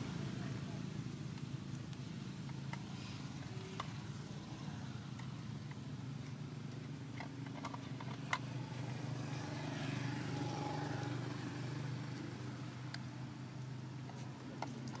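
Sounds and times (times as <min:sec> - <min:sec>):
vehicle engine humming: 0:00.0 - 0:15.0
vehicle passing: 0:07.0 - 0:15.0.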